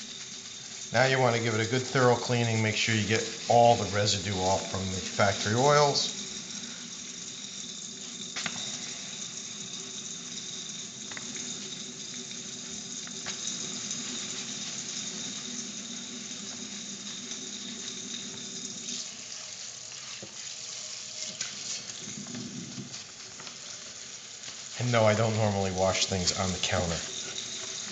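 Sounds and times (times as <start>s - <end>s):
steel wool scrubbing pan: 0.0s - 7.5s
faucet running into sink: 0.0s - 27.9s.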